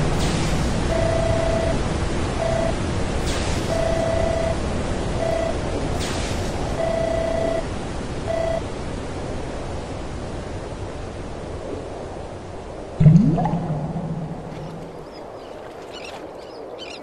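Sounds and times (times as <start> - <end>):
short electronic beeps: 0.2 - 1.8, 2.4 - 2.8, 3.6 - 4.6, 5.2 - 5.6, 6.7 - 7.6, 8.3 - 8.6
loud rising tone: 13.0 - 15.0.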